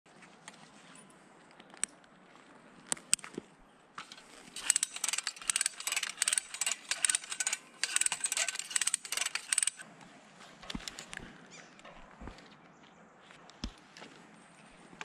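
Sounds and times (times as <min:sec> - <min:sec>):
carabiners clinking and rattling: 0:04.0 - 0:09.8, 0:10.6 - 0:11.2.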